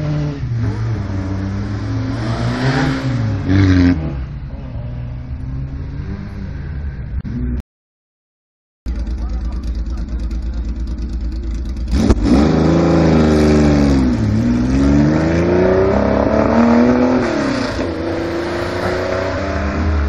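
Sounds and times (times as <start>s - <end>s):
rally car engine accelerating: 0.0s - 7.6s, 8.9s - 20.0s.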